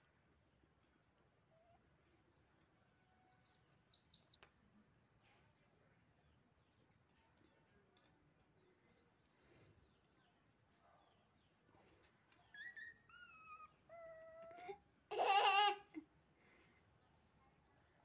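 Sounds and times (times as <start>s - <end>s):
puppy whimpering: 12.5s - 14.8s.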